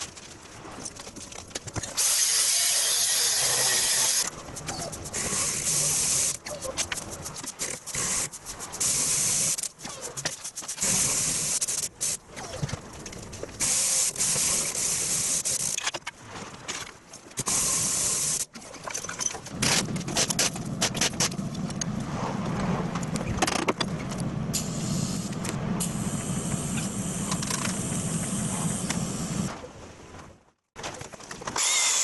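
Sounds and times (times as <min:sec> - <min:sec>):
low mechanical running: 0:19.6 - 0:29.5.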